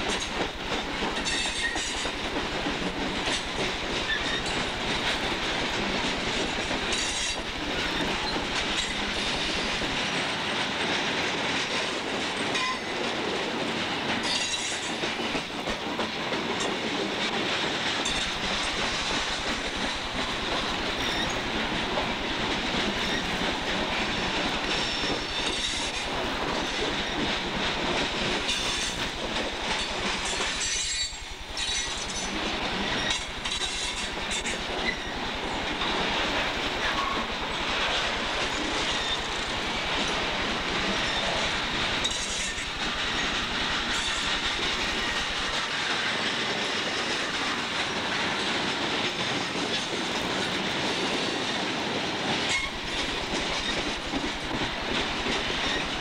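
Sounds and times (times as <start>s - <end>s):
rail joint clicks: 0.0s - 56.0s
train wheels rumbling on rails: 0.0s - 56.0s
wheel squeal: 4.1s - 4.6s, 21.0s - 21.4s.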